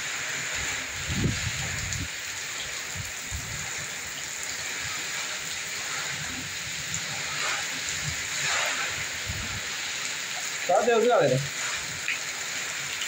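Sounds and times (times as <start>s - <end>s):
heavy rain falling: 0.0s - 13.0s
wind buffeting microphone: 0.6s - 4.0s, 6.0s - 9.8s.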